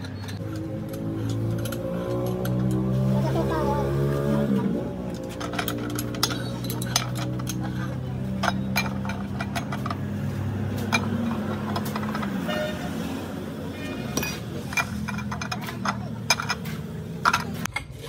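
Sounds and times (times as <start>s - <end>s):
metal parts clinking: 0.0s - 3.0s, 5.1s - 12.7s, 14.1s - 17.7s.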